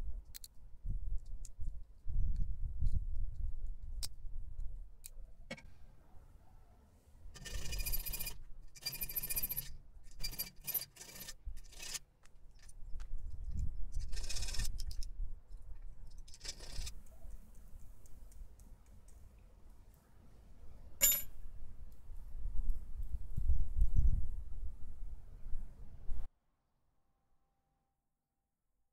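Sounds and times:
metal parts scraping: 7.4 - 12.0, 16.3 - 16.9
light metal clicks and clinks: 21.0 - 21.3.

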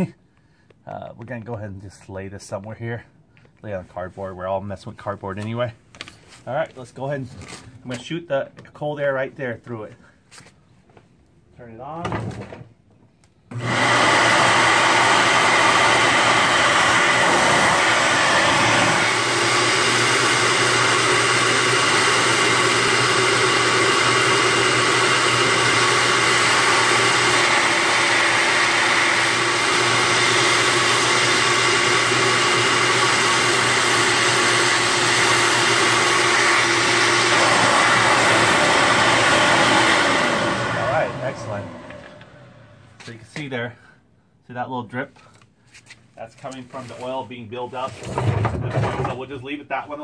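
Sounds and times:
air blower running: 13.5 - 43.1.

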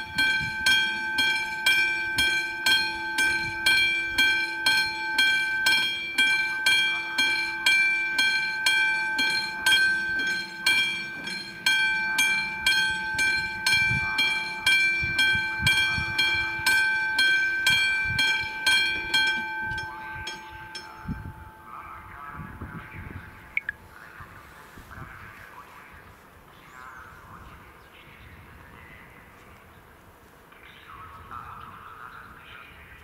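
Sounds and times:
level crossing warning bell: 0.0 - 24.8.

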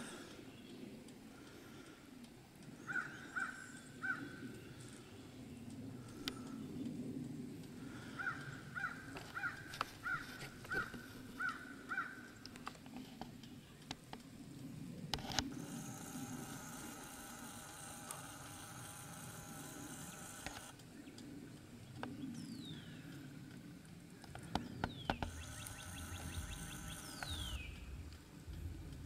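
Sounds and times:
faint ticks: 0.0 - 11.6, 12.2 - 29.0
faint steady hum: 0.0 - 29.0
crow cawing: 2.8 - 4.4, 7.9 - 12.3
sharp clicks: 12.4 - 22.5, 23.2 - 29.0.

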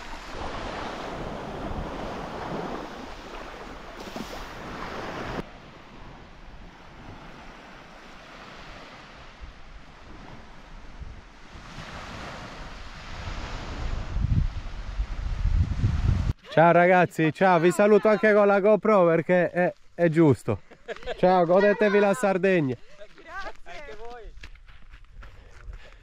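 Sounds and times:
small waves washing onto sand: 0.0 - 16.4
wind on microphone: 0.0 - 16.4.

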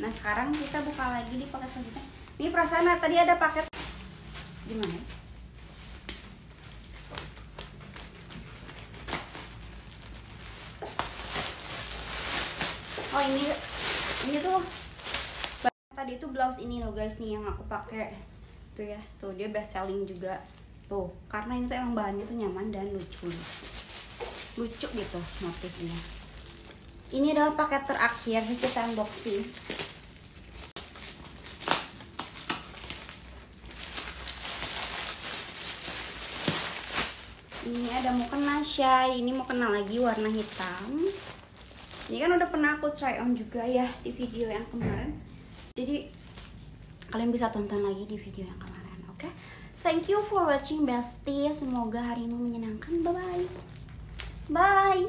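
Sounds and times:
parcels being handled: 0.0 - 15.8, 22.8 - 42.6
plastic bag crinkling: 0.0 - 15.8, 22.8 - 44.8, 45.4 - 47.9, 51.4 - 55.0
plastic packaging rustling: 0.0 - 15.8, 22.6 - 47.9, 50.0 - 55.0.

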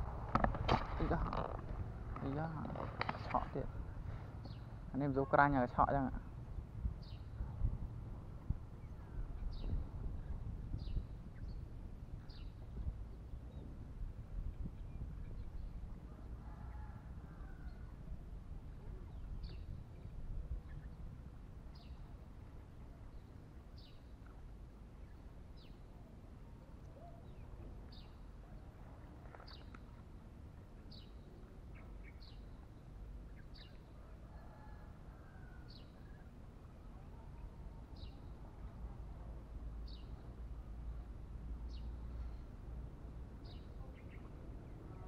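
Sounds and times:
low steady rumble: 0.0 - 45.0.

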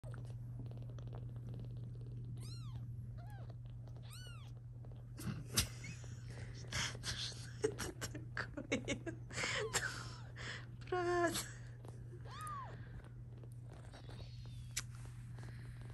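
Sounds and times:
rustling: 11.6 - 15.9
kittens mewing: 12.2 - 13.0.

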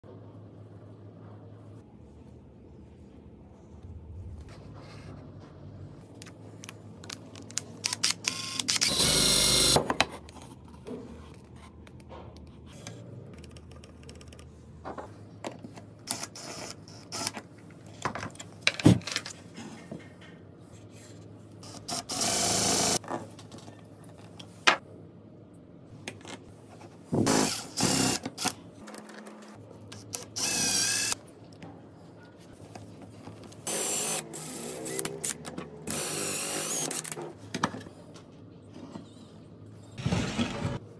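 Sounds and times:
cordless drill whirring: 8.2 - 9.8, 30.4 - 31.2, 35.9 - 37.1.

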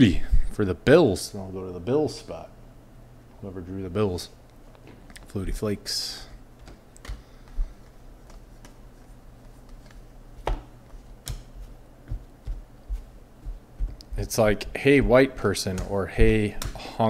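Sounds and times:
cards flicked and tapped: 6.6 - 8.8, 9.4 - 14.2.

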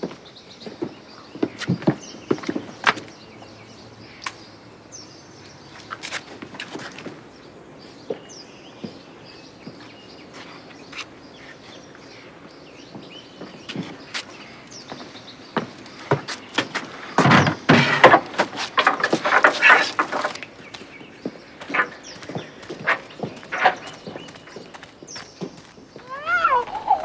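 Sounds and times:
birds chirping faintly: 0.0 - 27.0
outdoor ambience: 0.0 - 27.0
footsteps: 8.0 - 27.0.

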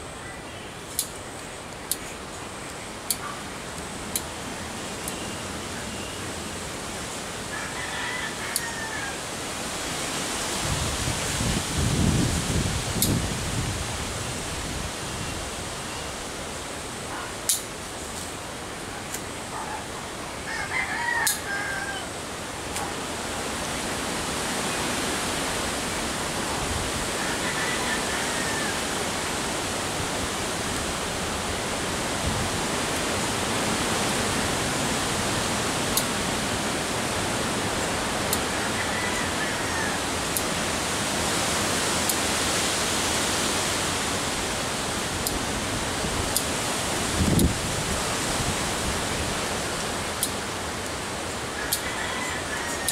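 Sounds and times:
steady hiss: 0.0 - 20.5, 21.2 - 52.9
rooster crowing: 7.5 - 9.3, 20.4 - 22.2, 27.1 - 29.3, 38.3 - 40.2, 51.5 - 52.9.

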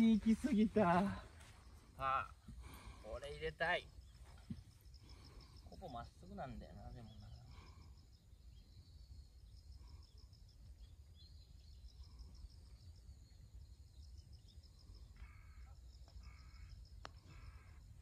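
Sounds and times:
insects chirping: 0.0 - 18.0
bird calling: 15.0 - 18.0.

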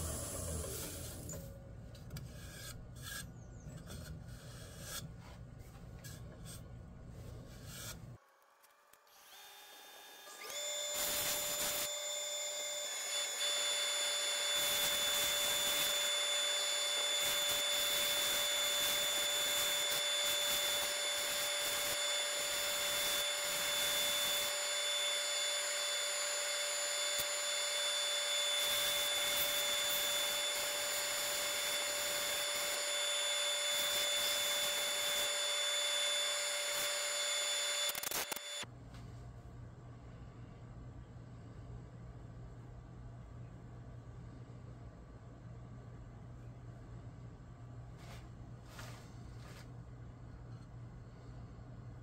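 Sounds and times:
lathe motor whine: 9.2 - 38.6.

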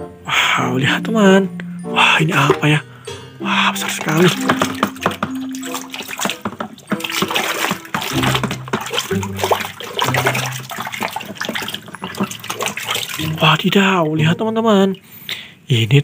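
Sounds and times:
background music of held notes: 0.0 - 15.4
soapy water sloshing in basin: 3.4 - 15.1.

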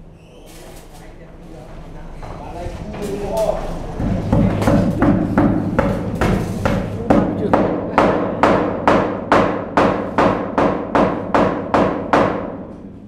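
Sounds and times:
hammer blows ringing on metal: 4.0 - 12.8.

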